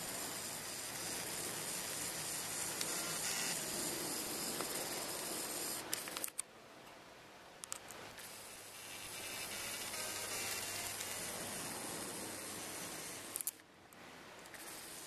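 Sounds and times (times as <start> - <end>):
steady hiss: 0.0 - 15.0
sharp clicks: 4.6 - 6.5, 13.3 - 13.6.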